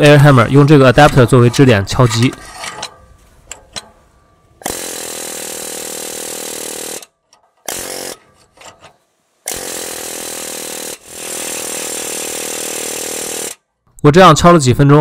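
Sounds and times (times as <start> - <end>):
pneumatic air hammer bursts: 4.6 - 13.6.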